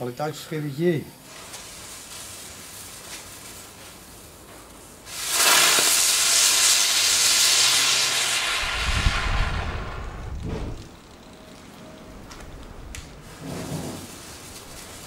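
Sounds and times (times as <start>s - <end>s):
firework spinner hissing: 1.2s - 11.3s, 13.2s - 15.0s.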